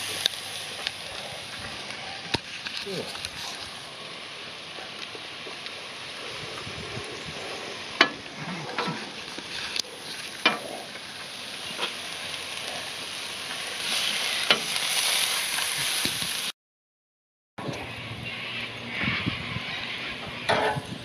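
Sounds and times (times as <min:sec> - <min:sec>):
food sizzling on a grill: 0:00.0 - 0:16.5.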